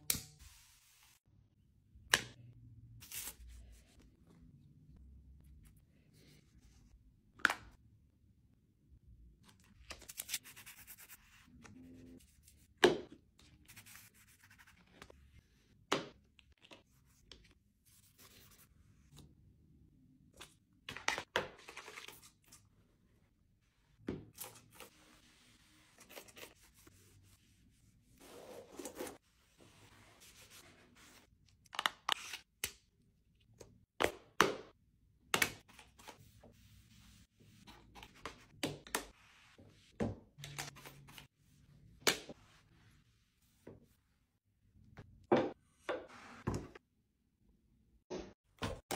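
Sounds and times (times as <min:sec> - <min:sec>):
cloth wiping glass and metal: 0:35.8 - 0:38.0.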